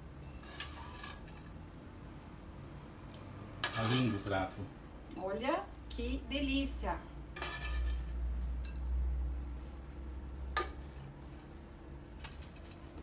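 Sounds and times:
low steady hum: 0.0 - 13.0
metal spoon scraping frying pan: 0.2 - 1.6, 3.6 - 4.4, 7.3 - 8.9.

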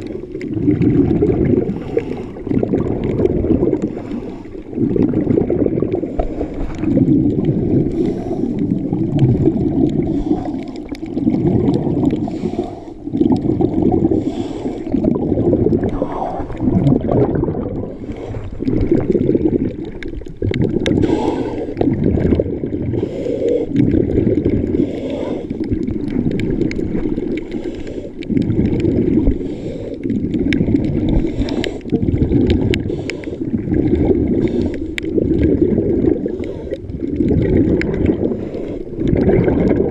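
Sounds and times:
muffled underwater water sloshing: 0.0 - 39.9
faint clicks: 34.4 - 35.2.

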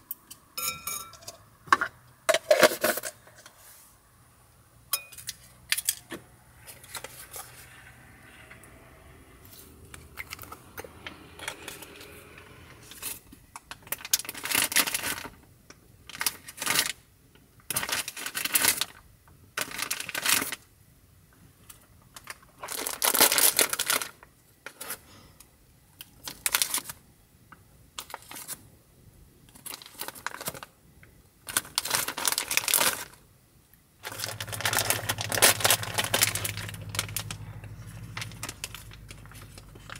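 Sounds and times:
plastic packet crinkling: 12.9 - 15.4, 17.7 - 19.0, 19.6 - 20.6, 22.1 - 25.0, 26.1 - 27.0, 29.5 - 30.7, 31.4 - 33.2, 34.0 - 39.9.

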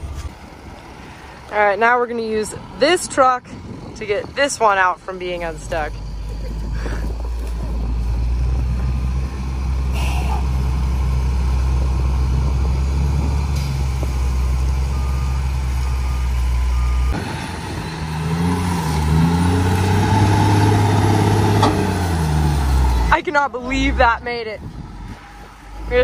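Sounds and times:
diesel truck engines under load: 0.0 - 26.0.

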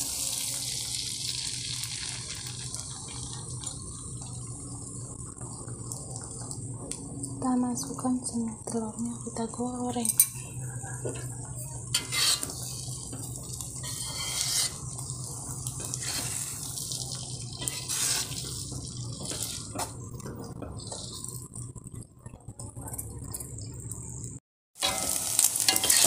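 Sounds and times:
eggs sizzling in hot oil: 0.0 - 26.0
spatula scraping a pan: 11.9 - 15.0, 15.8 - 20.0, 24.8 - 26.0.

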